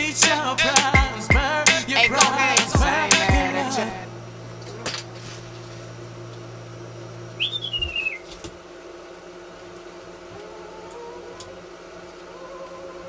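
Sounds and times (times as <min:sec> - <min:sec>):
steady low hum: 0:00.0 - 0:13.0
short sliding whistle: 0:07.4 - 0:08.2.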